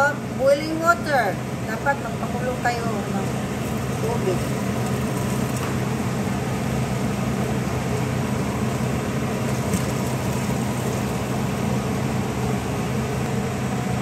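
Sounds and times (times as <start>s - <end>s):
low mechanical hum: 0.0s - 14.0s
boiling water splashing into pot: 2.9s - 14.0s.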